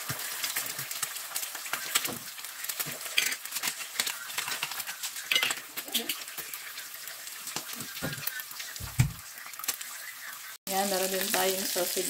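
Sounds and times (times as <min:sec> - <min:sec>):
salt and pepper clicks: 0:00.0 - 0:06.5
eggs sizzling in oil: 0:00.0 - 0:12.0.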